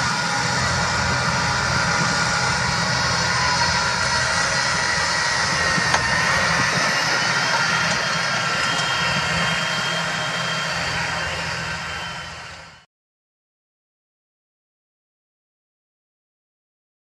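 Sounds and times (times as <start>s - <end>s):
high whine: 0.0s - 12.9s
tractor diesel engine under load: 0.0s - 12.9s.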